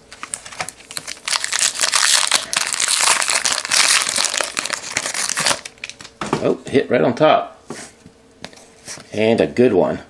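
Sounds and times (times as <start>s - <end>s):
foil wrapper crinkling: 0.0s - 6.2s
foil pack tearing open: 0.1s - 6.1s.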